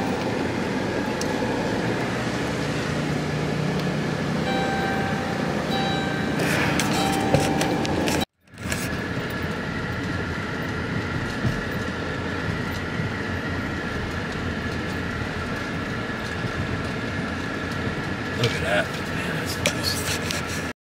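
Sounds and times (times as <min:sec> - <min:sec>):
car interior road rumble: 0:00.0 - 0:20.7.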